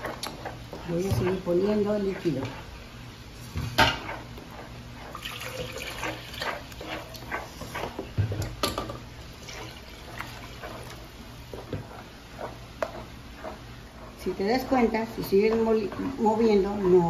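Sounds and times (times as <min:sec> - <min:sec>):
spoon stirring wet sauce: 0:00.0 - 0:17.0
broth pouring into sauce: 0:05.1 - 0:06.4.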